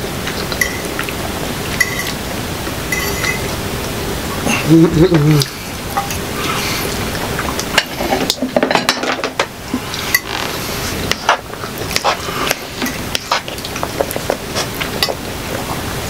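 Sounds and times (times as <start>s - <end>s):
metal utensils clinking on plates: 0.3s - 1.0s, 1.8s - 2.2s, 2.9s - 3.5s, 5.9s - 6.2s, 7.6s - 10.4s.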